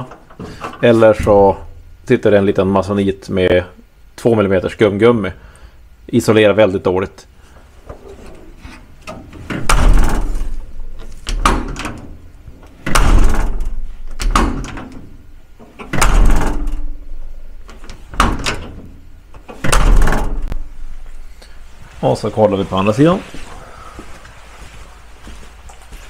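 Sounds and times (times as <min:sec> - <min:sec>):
tinny metal door slamming: 0:09.1 - 0:21.0.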